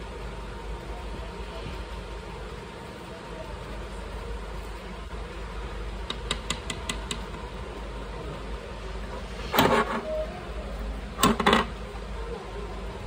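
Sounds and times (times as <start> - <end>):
paintbrush clicking on paint pots: 6.0 - 7.3.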